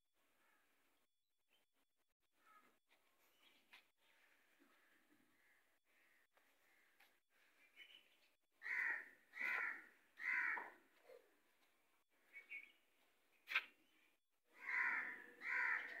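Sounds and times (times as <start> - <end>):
crow cawing: 8.6 - 10.8, 14.5 - 16.0.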